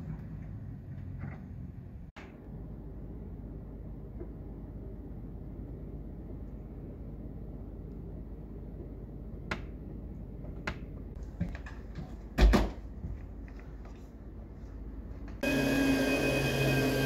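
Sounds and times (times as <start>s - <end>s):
vacuum cleaner whine: 15.4s - 17.0s.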